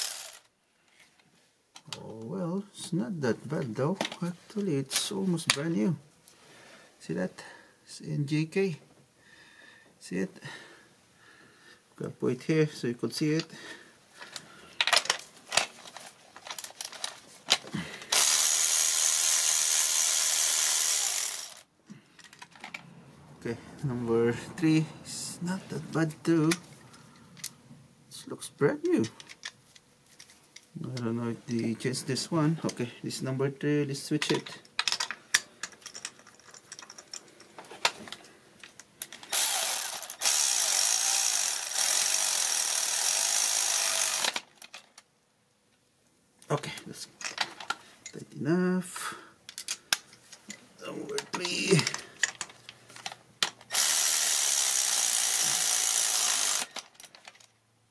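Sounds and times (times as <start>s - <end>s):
cordless electric ratchet running: 0.0s - 0.4s, 18.1s - 21.7s, 39.3s - 44.5s, 53.7s - 56.8s.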